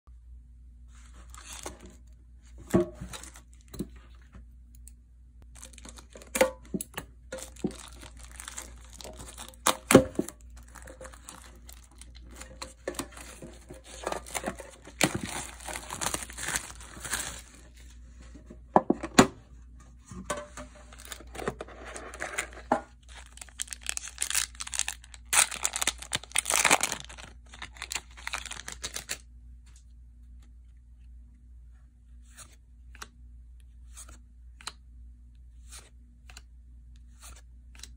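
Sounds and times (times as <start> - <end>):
plastic shrink wrap crackling: 5.5 - 6.4, 7.4 - 17.8, 23.0 - 29.2.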